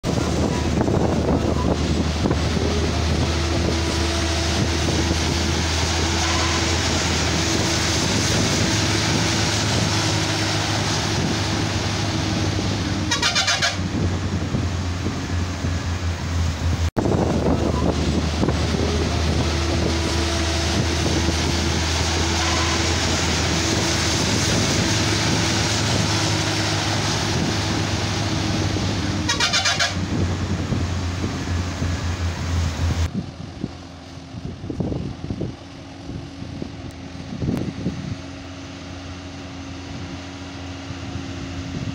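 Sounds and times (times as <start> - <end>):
road noise: 0.0 - 41.9
truck diesel engines droning: 0.0 - 41.9
rapidly pulsing horn: 6.0 - 6.9, 13.0 - 14.0, 22.2 - 23.3, 28.8 - 30.2.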